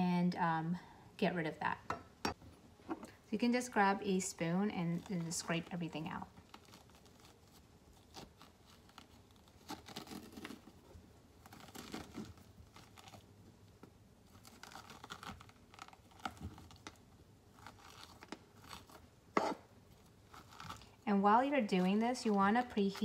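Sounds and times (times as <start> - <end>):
spoon scraping squash: 17.6 - 23.0.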